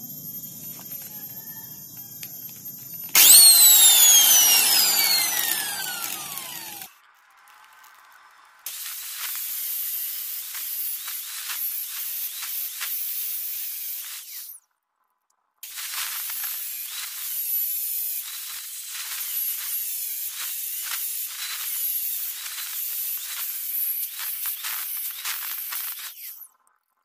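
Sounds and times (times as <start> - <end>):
angle grinder cutting metal: 2.5 - 6.9, 8.7 - 14.5, 15.6 - 26.4.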